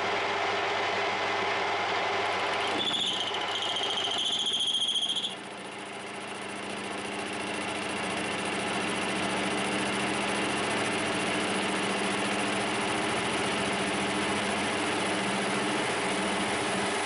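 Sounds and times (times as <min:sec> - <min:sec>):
metal lathe cutting steel: 0:02.4 - 0:05.5.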